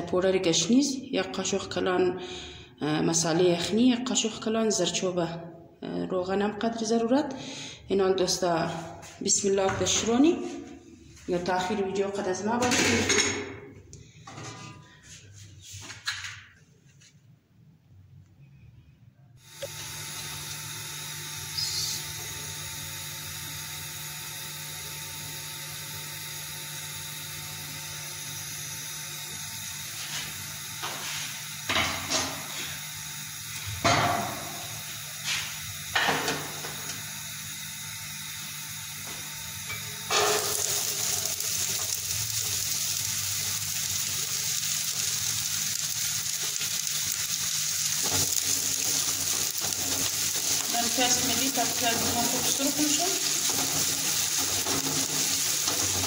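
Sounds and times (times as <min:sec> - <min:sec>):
onions sizzling in hot oil: 0:39.7 - 0:56.0.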